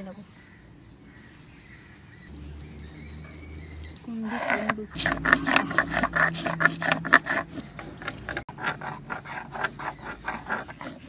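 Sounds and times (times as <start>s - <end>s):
grinding stone crushing seeds: 2.6s - 11.0s.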